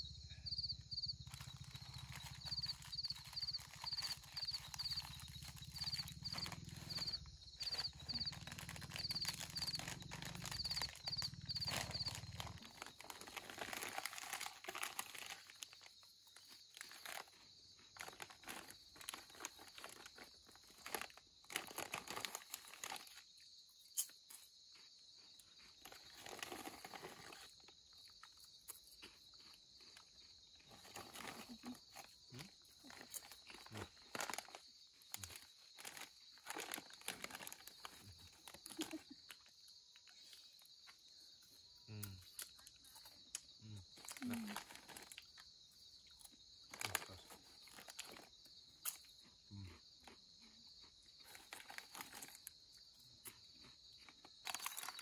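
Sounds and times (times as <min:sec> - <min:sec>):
night insects buzzing: 0:00.0 - 0:13.2
crinkling handling noise: 0:01.2 - 0:23.3, 0:25.6 - 0:40.7, 0:43.9 - 0:45.5, 0:46.2 - 0:49.0, 0:51.2 - 0:52.6, 0:54.0 - 0:55.0.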